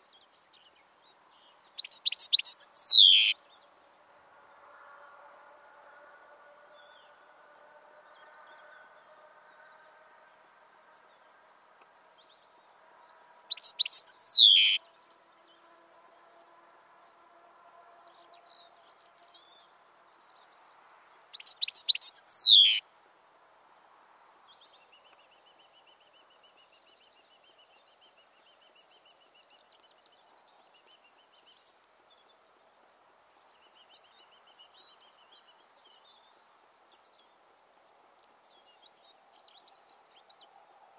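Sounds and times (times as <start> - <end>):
faint bird chirps: 1.6 - 3.4, 13.4 - 14.8, 21.1 - 22.8
goldfinch singing: 1.7 - 3.3, 13.4 - 14.8, 21.3 - 22.8.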